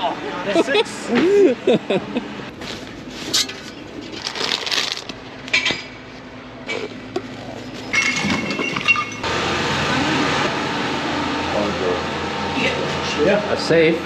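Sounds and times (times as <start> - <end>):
clinks and knocks: 7.8 - 9.3.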